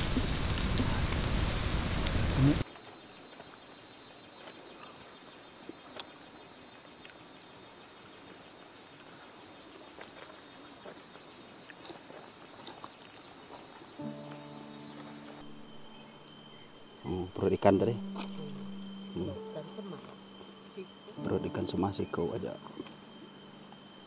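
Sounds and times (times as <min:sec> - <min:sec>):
forest insects droning: 0:00.0 - 0:24.0.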